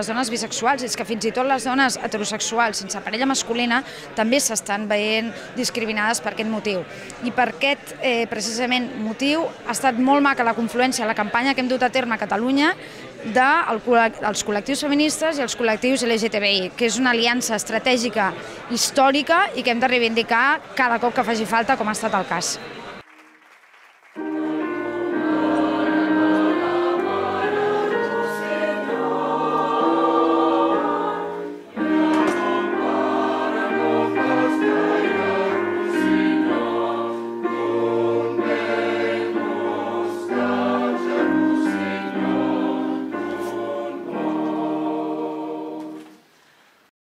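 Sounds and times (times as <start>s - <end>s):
mixed choir singing: 24.2s - 46.2s.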